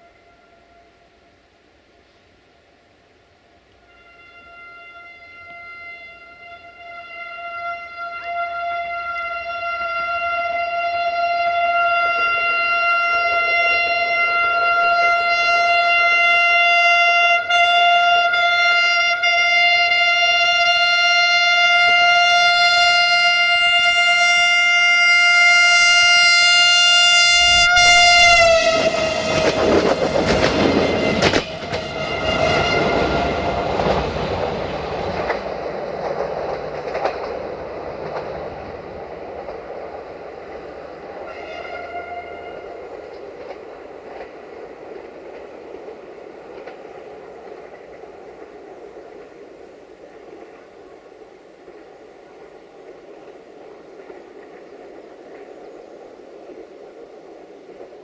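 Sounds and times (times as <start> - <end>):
train horn: 0.0 - 1.7, 3.6 - 35.4, 41.2 - 44.3
railcar running past: 0.0 - 58.0
wheels clicking on rails: 28.7 - 51.1.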